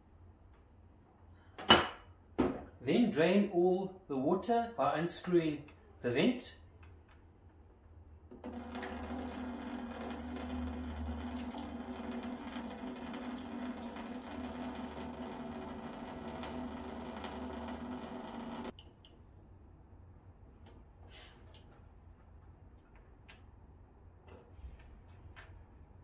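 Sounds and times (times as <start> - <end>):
water draining: 8.4 - 18.7.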